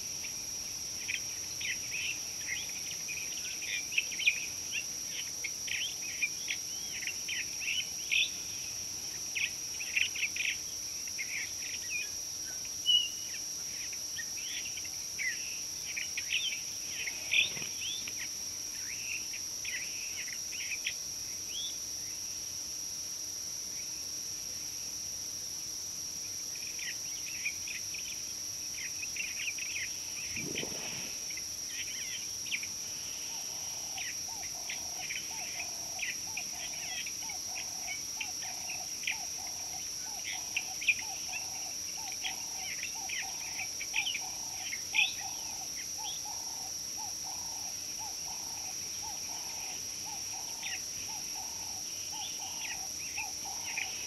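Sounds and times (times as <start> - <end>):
birds chirping: 30.2 - 31.4
lower repeating bird call: 30.2 - 31.4.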